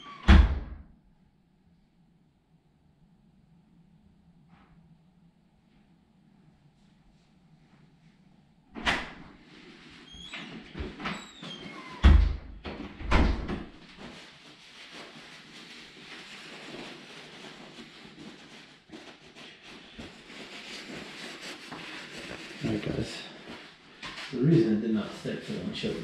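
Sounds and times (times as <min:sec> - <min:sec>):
paper towel rubbing hands: 0:09.4 - 0:11.9, 0:13.7 - 0:26.0.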